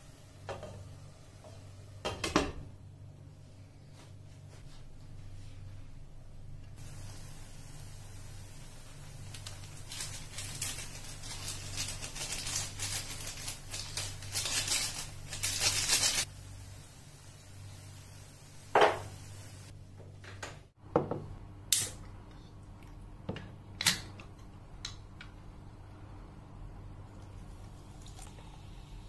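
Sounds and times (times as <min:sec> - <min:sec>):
dry crackly rustle of flakes: 0:09.2 - 0:16.3.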